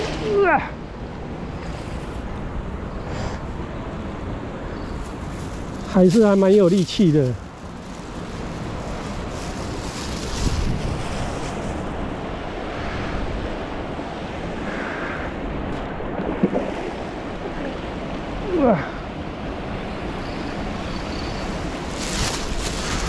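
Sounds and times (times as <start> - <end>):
wind on microphone: 8.6 - 18.7
river water flowing: 11.2 - 23.0.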